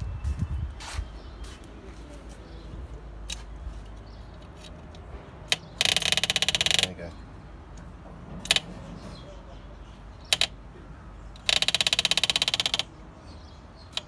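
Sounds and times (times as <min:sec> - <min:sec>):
electric fuel pump ticking: 0:05.5 - 0:07.0, 0:11.4 - 0:12.9.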